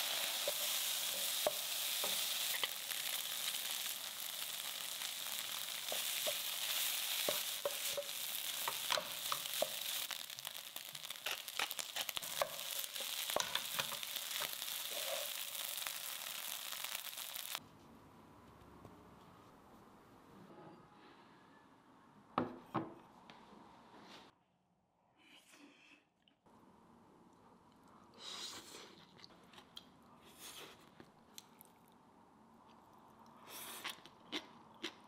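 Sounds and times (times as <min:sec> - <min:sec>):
stir-fry sizzling: 0:00.0 - 0:17.6.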